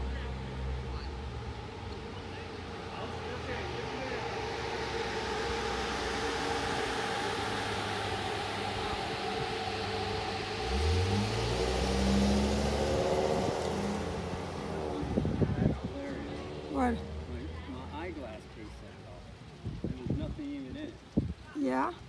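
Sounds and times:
bus engine revving: 2.9 - 17.4.

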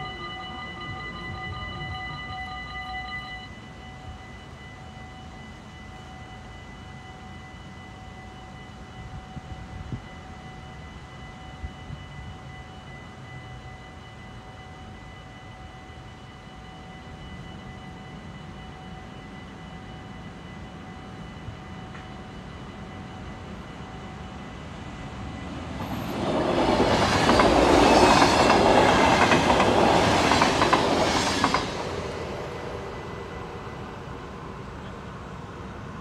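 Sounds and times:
train passing: 0.0 - 36.0.

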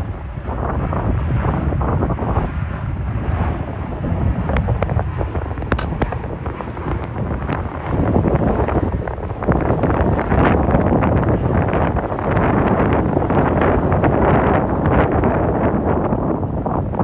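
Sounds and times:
jet engines rumbling overhead: 0.0 - 17.0
wind buffeting microphone: 0.0 - 17.0.

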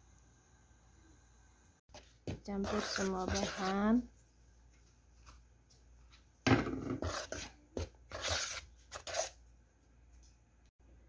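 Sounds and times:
spoon scraping flour in bowl: 1.9 - 4.1, 6.8 - 9.5.

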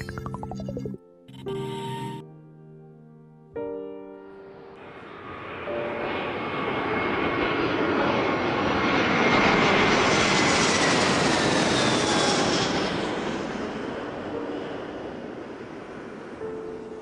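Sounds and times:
jet aircraft passing by: 4.5 - 17.0.

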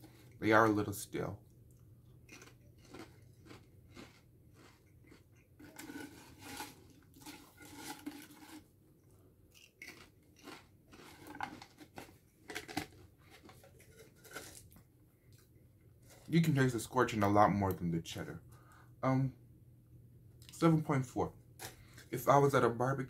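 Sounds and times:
chewing and crunching chips: 0.0 - 17.0.

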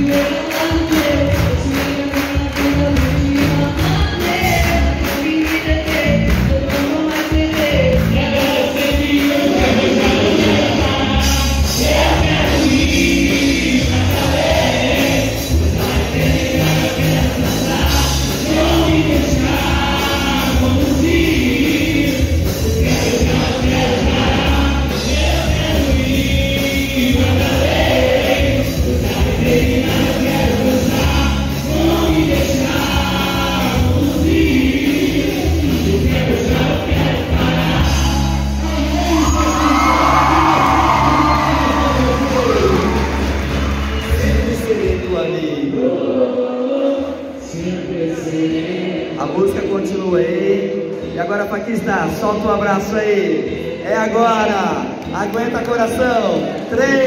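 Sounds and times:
group singing worship song: 0.0 - 51.0, 53.0 - 54.9.

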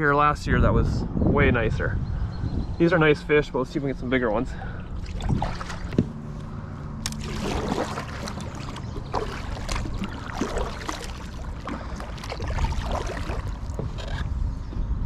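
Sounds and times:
low hum: 1.0 - 15.0
water splashing on kayak hull: 4.6 - 14.2.

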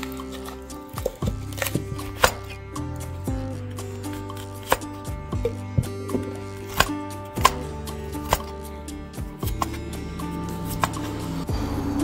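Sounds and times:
background music: 0.0 - 12.0
knife chopping on cutting board: 1.0 - 2.6, 4.2 - 8.5.

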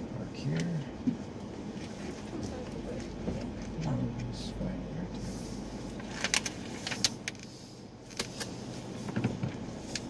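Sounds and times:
car road rumble: 0.0 - 10.0
clicks and rattles in car: 6.0 - 7.5, 8.1 - 10.0.

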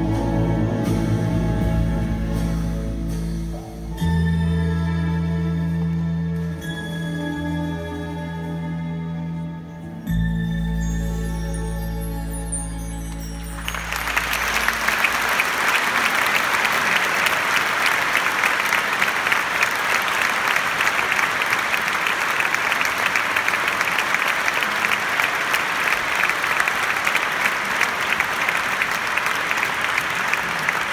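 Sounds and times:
audience applauding: 13.2 - 30.9.

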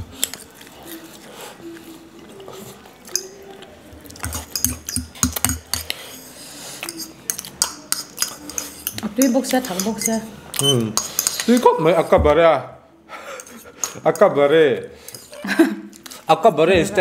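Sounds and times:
spoons clinking against ceramic bowls: 3.0 - 12.1, 13.3 - 16.1.

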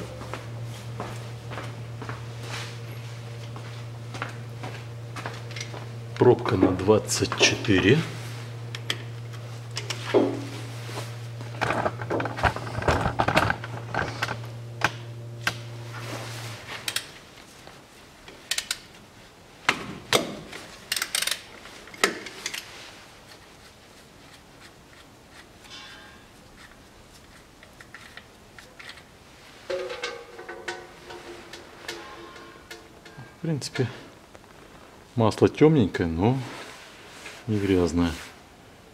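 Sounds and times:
steady low hum: 0.0 - 38.9
ratchet wrench clicking: 20.9 - 21.4
metal tool clanks: 25.7 - 26.3, 29.7 - 33.3.

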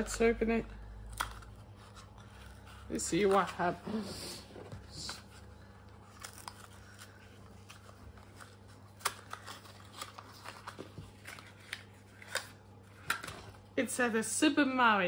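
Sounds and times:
box packaging clicks and rustles: 4.7 - 13.7.

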